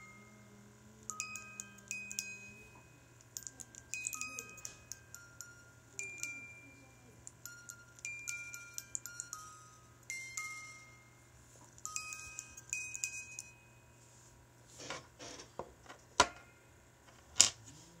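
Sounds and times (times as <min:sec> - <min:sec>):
music box plucking notes: 0:00.0 - 0:14.0.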